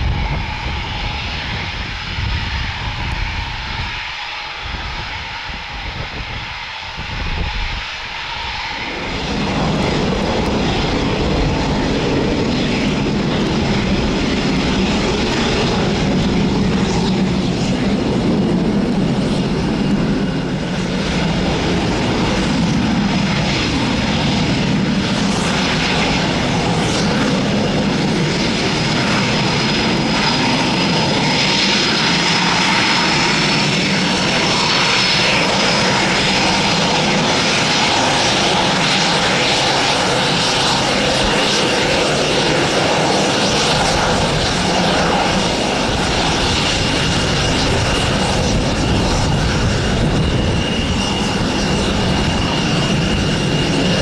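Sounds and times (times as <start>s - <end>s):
jet engine whine: 0.0s - 54.0s.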